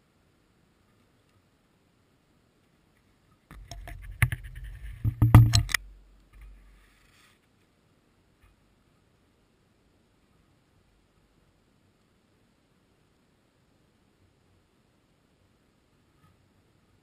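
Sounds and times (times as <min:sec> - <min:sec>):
squirrel claws scratching camera: 0:03.5 - 0:05.8.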